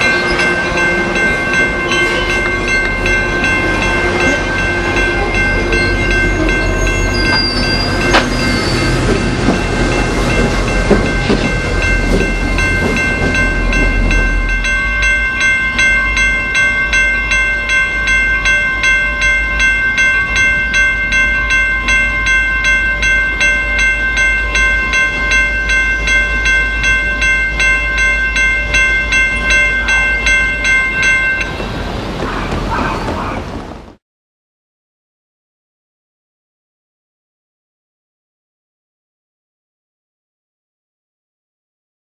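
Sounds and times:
railway warning bell ringing: 0.0s - 33.6s
train rumbling: 0.0s - 34.0s.

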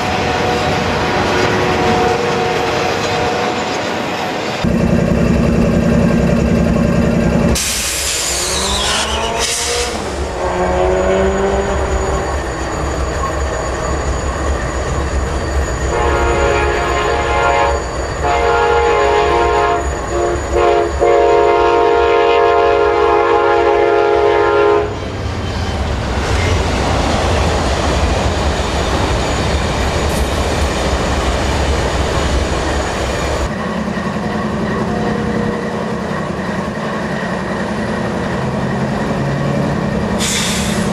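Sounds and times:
locomotive engines rumbling: 0.0s - 40.9s
locomotive horn chord: 9.2s - 11.8s, 15.9s - 24.9s.

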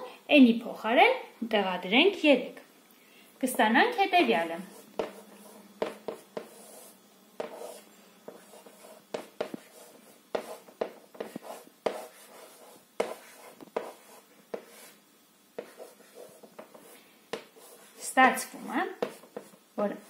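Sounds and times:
chalk tapping and scratching on board: 4.7s - 15.0s, 15.6s - 19.6s.

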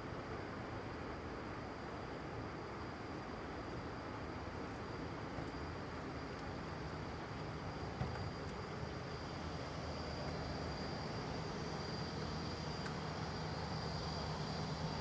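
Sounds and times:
faint high engine tone: 1.8s - 15.0s.

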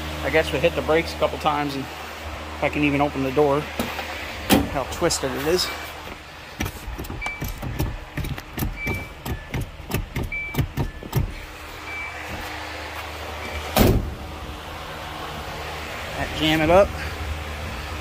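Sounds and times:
brake pedal clunks: 6.0s - 12.5s
short squeaks: 8.7s - 9.7s.

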